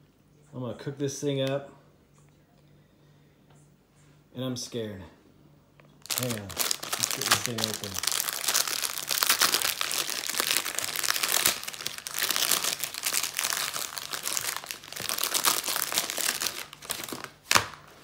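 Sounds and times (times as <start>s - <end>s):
plastic wrap crinkling: 6.0s - 18.0s.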